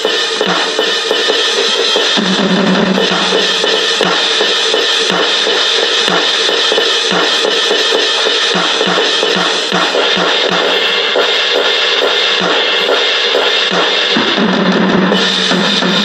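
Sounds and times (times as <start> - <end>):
electronic cymbals: 0.0 - 16.0
bass drum hits: 2.2 - 4.2.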